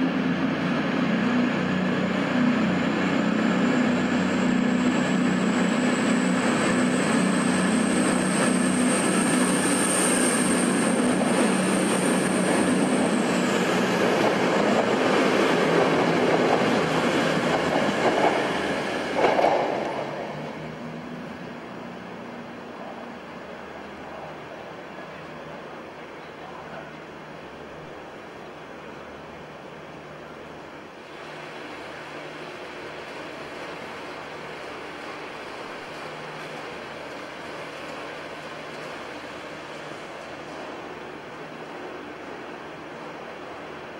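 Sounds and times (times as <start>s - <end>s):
high engine whine: 0.0s - 24.4s
diesel train engine drone: 0.0s - 43.9s.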